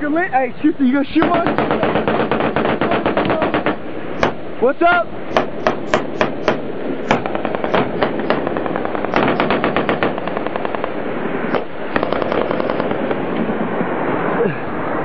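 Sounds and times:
automatic gunfire burst: 1.2s - 4.4s, 5.3s - 13.3s
rifle shots: 1.2s - 4.4s, 5.3s - 13.4s.

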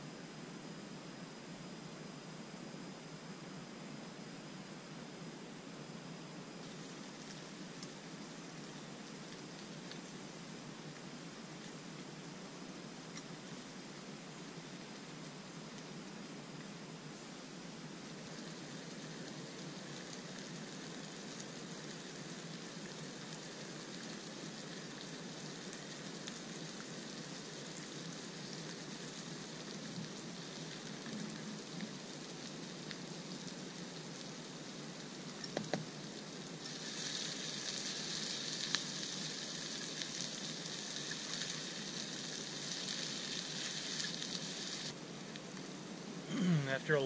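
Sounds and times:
food sizzling in a frying pan: 19.8s - 44.9s.

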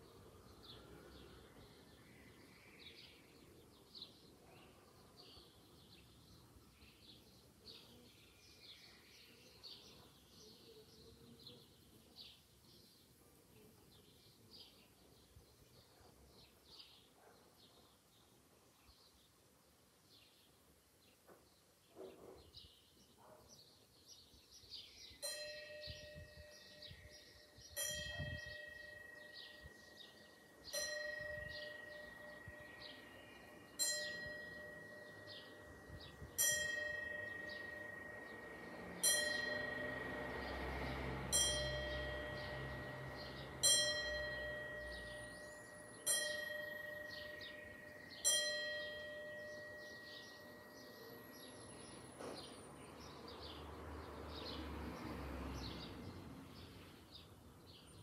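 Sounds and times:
bell tolling: 25.2s - 52.7s.

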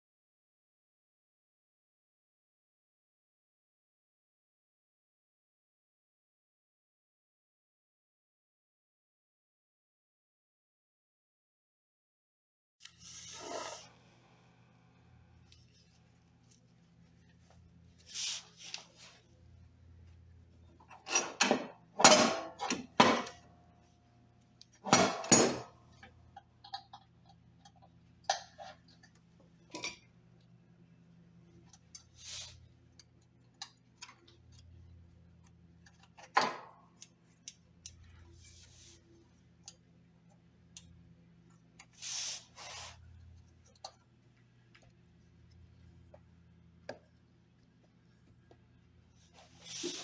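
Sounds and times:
metal scrape: 12.9s - 14.0s, 49.3s - 50.0s.

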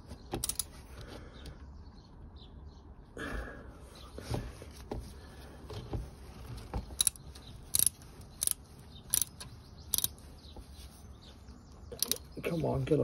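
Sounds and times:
ratchet pawl clicking: 7.0s - 10.2s.

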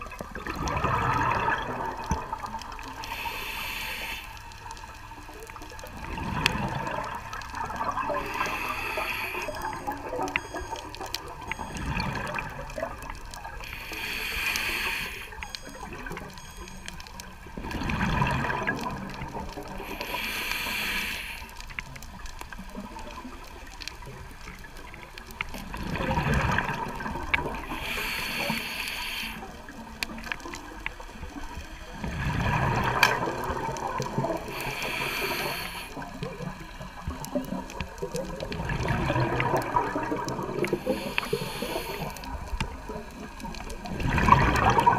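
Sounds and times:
exhaled bubbles rushing: 0.0s - 3.0s, 5.5s - 13.6s, 17.6s - 19.9s, 24.7s - 27.8s, 29.8s - 44.9s
regulator hissing on inhale: 2.8s - 4.8s, 8.2s - 9.8s, 13.5s - 15.5s, 19.7s - 21.8s, 27.6s - 29.8s, 34.4s - 37.0s, 40.6s - 43.4s.

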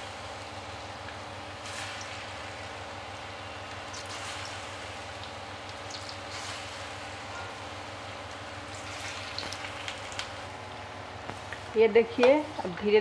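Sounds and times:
fritters sizzling in hot oil: 1.2s - 10.6s.

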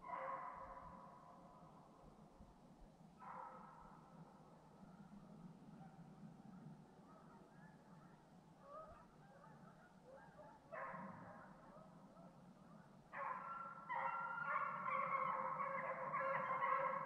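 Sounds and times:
hounds baying in chorus: 13.2s - 17.0s.

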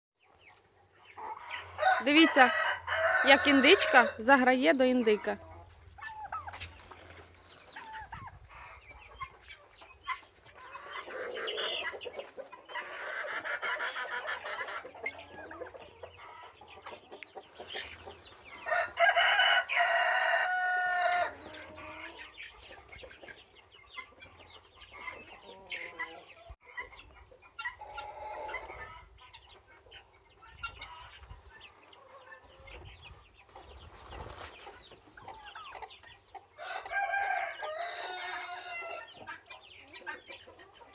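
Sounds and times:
chickens clucking: 0.2s - 40.9s
rooster crowing loudly: 1.8s - 4.2s, 18.7s - 21.4s, 36.6s - 39.0s.

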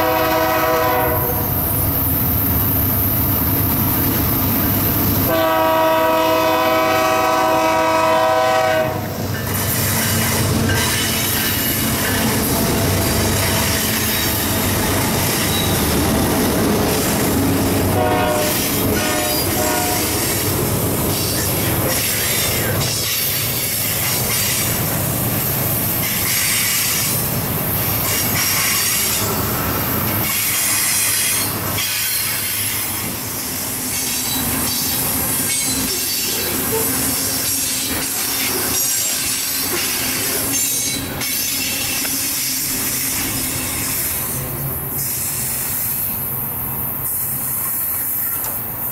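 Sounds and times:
diesel locomotive engines: 0.0s - 48.9s
train wheels clattering and squealing: 9.2s - 17.5s, 18.2s - 46.2s, 47.0s - 48.9s.

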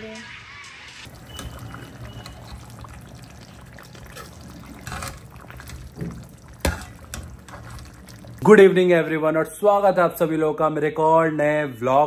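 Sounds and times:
curry sloshing while stirred: 1.1s - 8.4s.

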